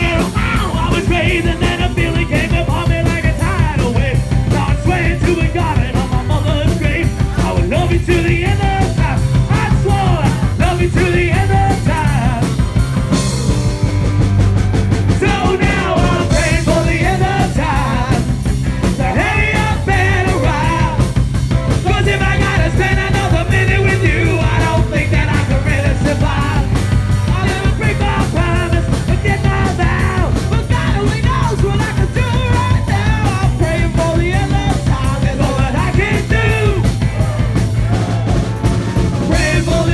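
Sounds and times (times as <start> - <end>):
singers on microphones: 0.0 - 12.6, 15.1 - 38.4, 39.2 - 39.9
live rock band playing: 0.0 - 39.9
steady drum beat: 0.0 - 39.9.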